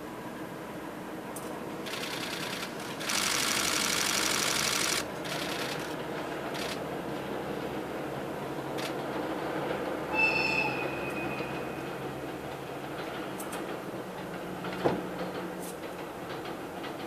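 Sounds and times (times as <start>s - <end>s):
train rumbling over bridge: 0.0s - 17.0s
camera shutter bursts: 1.9s - 5.9s.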